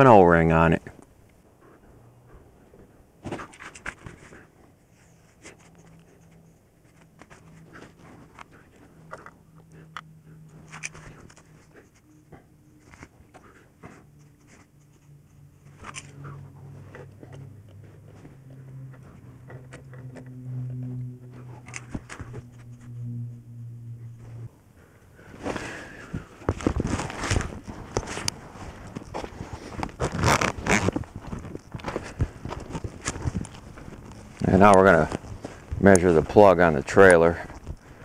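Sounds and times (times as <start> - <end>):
faint low hum: 0.0 - 38.0
metal caliper clicks and scrapes: 8.3 - 12.2, 18.5 - 23.0.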